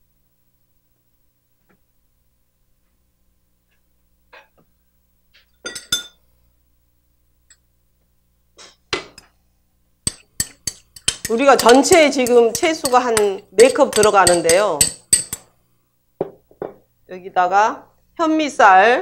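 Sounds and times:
utensils clinking on pans and dishes: 5.6s - 6.2s, 10.1s - 15.5s.

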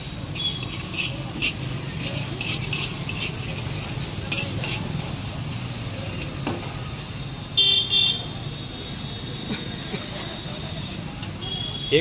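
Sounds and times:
noodles sizzling in a pan: 0.0s - 8.1s
spatula scraping a pan: 0.2s - 5.8s.

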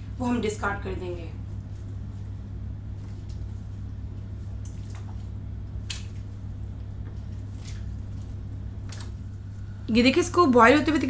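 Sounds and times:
steady low hum: 0.0s - 11.0s
meat pieces splashing into water: 4.6s - 9.4s.

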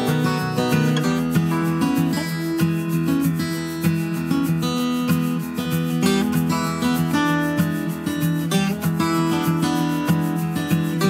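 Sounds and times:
strummed acoustic guitar music: 0.0s - 11.0s.

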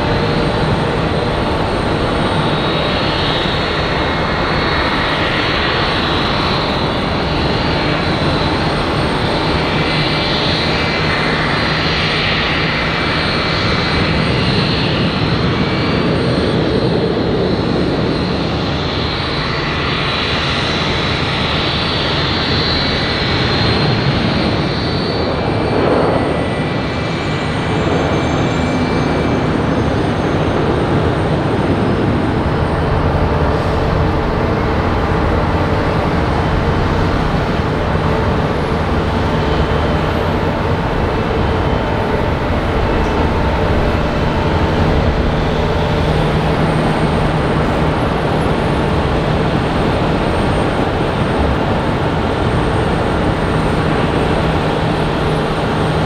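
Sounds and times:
jet engines roaring: 0.0s - 56.0s.

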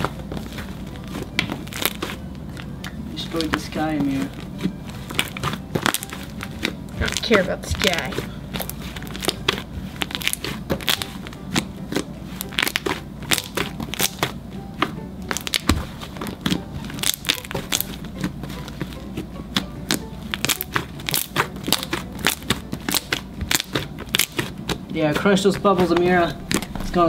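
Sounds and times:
background music: 0.0s - 27.0s
slime crackling pops: 19.9s - 24.8s.

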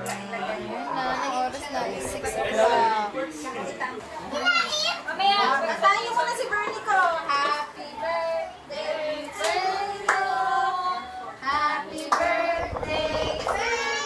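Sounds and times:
group of people singing: 7.3s - 14.0s.

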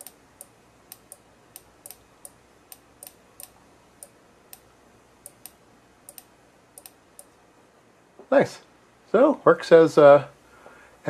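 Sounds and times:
low steady hiss: 0.0s - 11.0s
faint sharp clicks: 5.2s - 7.4s.

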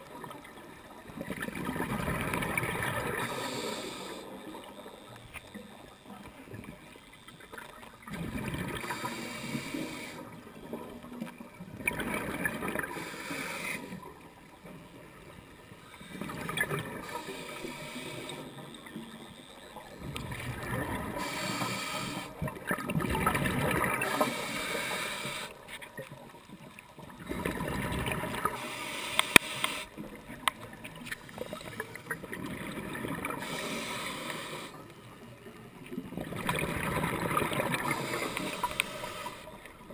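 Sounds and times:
underwater bubbles gurgling: 0.0s - 39.9s
sharp clicks: 29.1s - 30.6s.

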